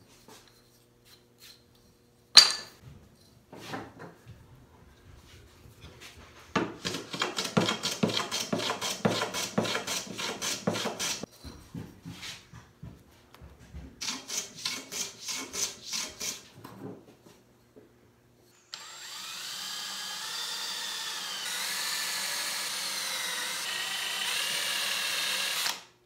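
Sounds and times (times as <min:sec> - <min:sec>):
hand plane strokes on wood: 0:06.6 - 0:11.3
cordless drill boring into wood: 0:18.6 - 0:25.9.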